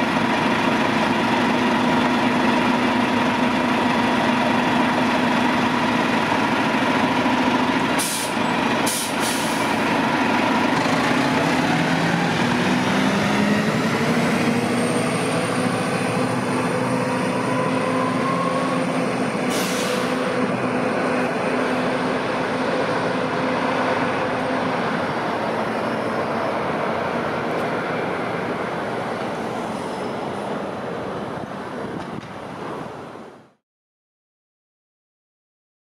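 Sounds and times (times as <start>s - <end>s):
bus engine whine accelerating: 0.0s - 33.4s
street traffic: 0.0s - 33.6s
short air hiss: 8.0s - 9.6s, 19.5s - 20.3s.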